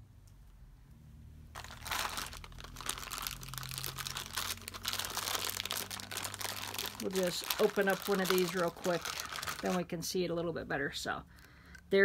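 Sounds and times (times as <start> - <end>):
plastic bag crinkling: 1.5 - 9.9.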